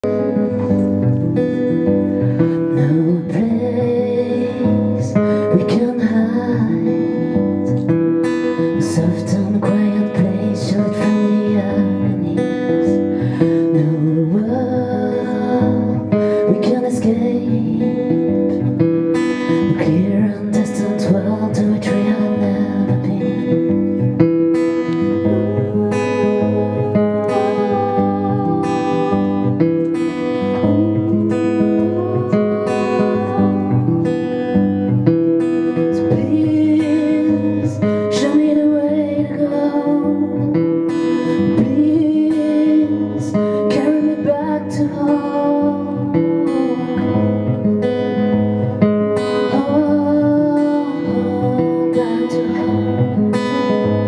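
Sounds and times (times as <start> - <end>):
acoustic guitar strumming: 0.0 - 54.0
woman singing: 0.0 - 54.0.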